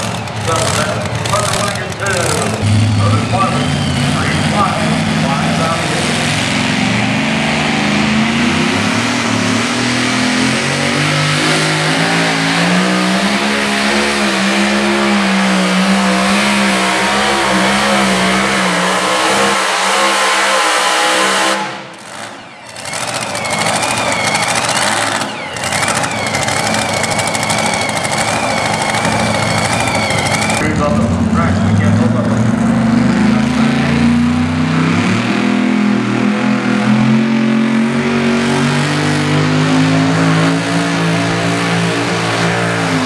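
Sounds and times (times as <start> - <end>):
high wavering engine whine: 0.0 - 43.0
truck engine running hard: 0.0 - 43.0.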